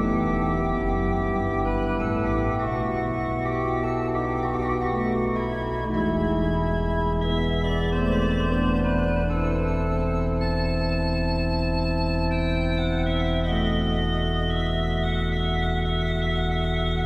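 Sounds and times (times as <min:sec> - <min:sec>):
pipe organ chorale: 0:00.0 - 0:17.0.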